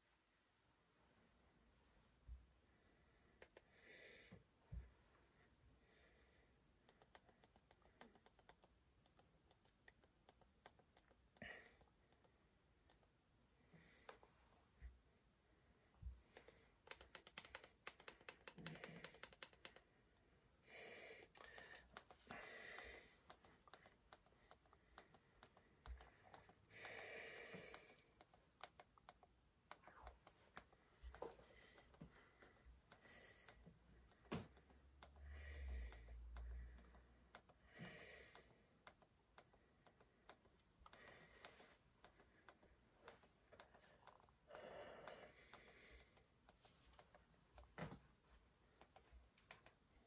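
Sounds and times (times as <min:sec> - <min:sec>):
soft breaths near microphone: 0:00.0 - 0:50.0
remote control buttons clicking: 0:06.9 - 0:11.2, 0:16.4 - 0:19.9
breathy nasal exhales: 0:26.7 - 0:28.0.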